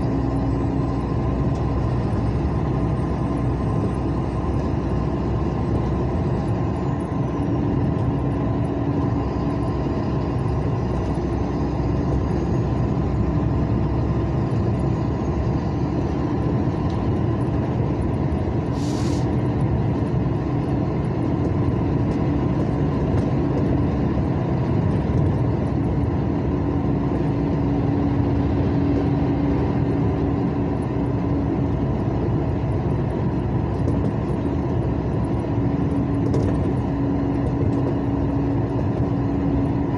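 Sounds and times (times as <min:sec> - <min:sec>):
car engine and tyre rumble: 0:00.0 - 0:39.9
brief hiss: 0:18.8 - 0:19.3.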